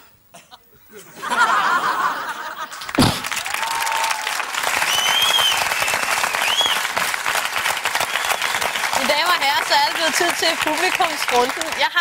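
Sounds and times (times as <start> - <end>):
audience clapping: 2.7 - 12.0
low thump: 3.0 - 3.3
crowd whooping: 3.0 - 9.6.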